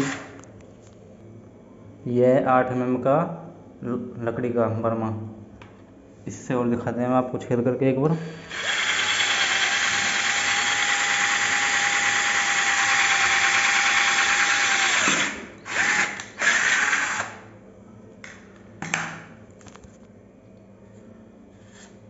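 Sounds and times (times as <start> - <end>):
cordless drill boring through wood: 0.0 - 0.3, 8.2 - 17.4.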